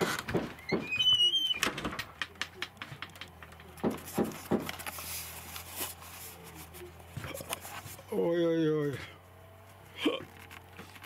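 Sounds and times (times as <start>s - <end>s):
camera handling clicks and rustling: 10.3s - 11.0s.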